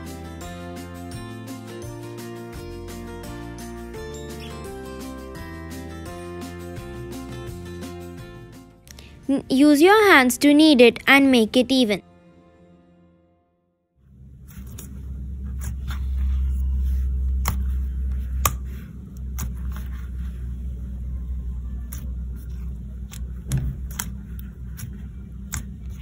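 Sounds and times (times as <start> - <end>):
steady low rumble: 14.0 - 26.0.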